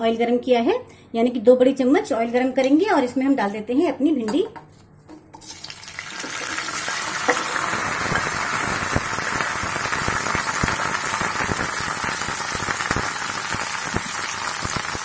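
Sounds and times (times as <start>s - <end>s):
okra sizzling in hot oil: 5.4s - 15.0s.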